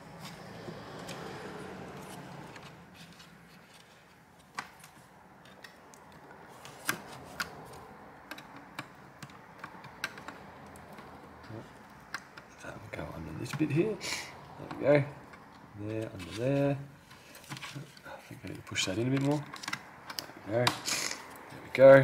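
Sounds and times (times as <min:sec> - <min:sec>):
small clicks and taps on plastic: 0:03.8 - 0:11.2.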